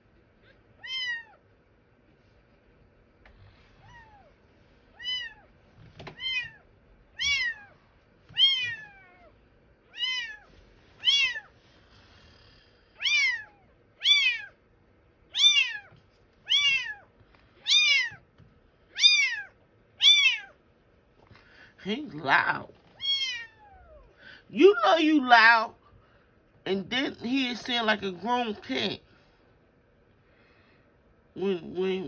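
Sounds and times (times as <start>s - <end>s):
kitten meowing loudly: 0.8s - 1.4s, 5.0s - 5.5s, 6.2s - 6.6s, 7.2s - 9.3s, 9.9s - 11.5s, 13.0s - 14.6s, 15.3s - 18.2s, 18.9s - 20.6s, 23.0s - 24.0s.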